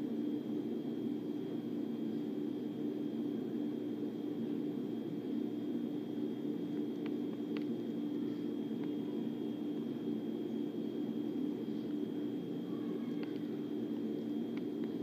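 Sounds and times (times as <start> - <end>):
faint high whine: 0.0 - 15.0
low hum with hiss: 0.0 - 15.0
faint clicks: 13.1 - 13.5.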